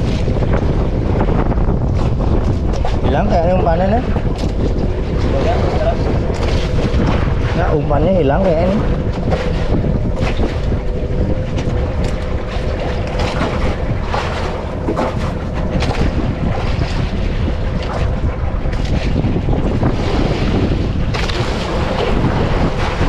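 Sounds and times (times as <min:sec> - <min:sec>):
waves splashing against hull: 0:00.0 - 0:23.0
wind buffeting microphone: 0:00.0 - 0:23.0.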